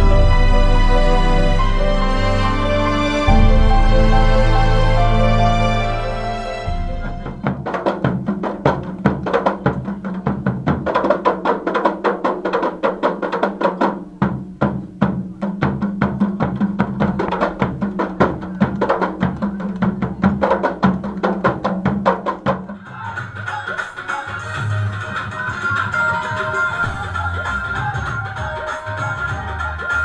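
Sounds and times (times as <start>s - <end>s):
frame drums beaten by hand: 0.0s - 6.0s, 6.6s - 30.0s
steady low tone: 0.0s - 7.6s.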